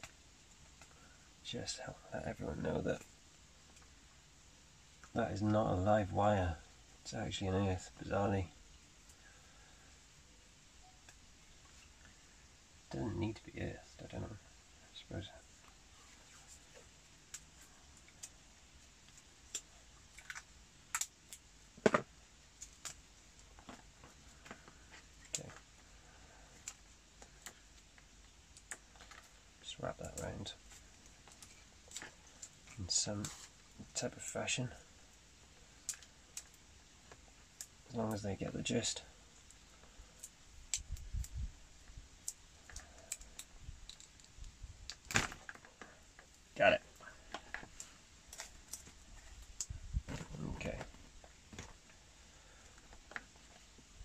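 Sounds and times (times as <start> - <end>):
clicks and crackles of wires and tape: 0.0 - 1.2, 1.8 - 4.1, 10.8 - 12.2, 12.8 - 54.0
fingers twisting wire: 42.2 - 46.4.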